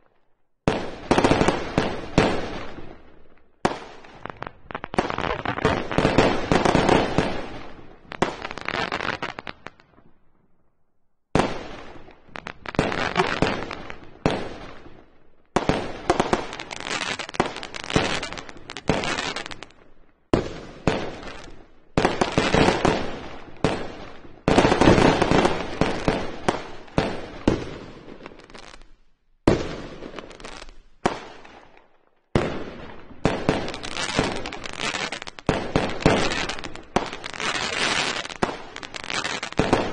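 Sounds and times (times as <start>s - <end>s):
firework shell bursts and crackling: 15.6s - 23.2s, 32.4s - 39.9s.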